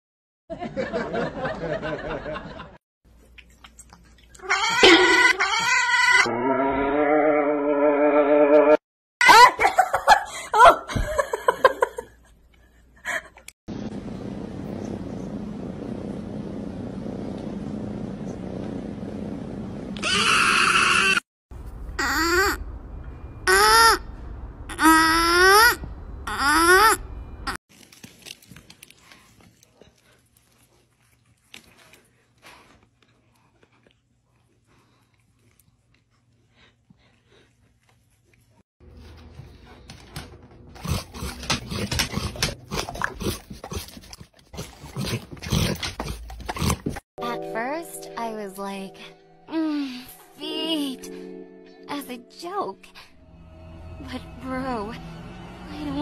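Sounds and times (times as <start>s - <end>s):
dog crunching a bean: 27.7s - 38.5s, 40.8s - 47.0s.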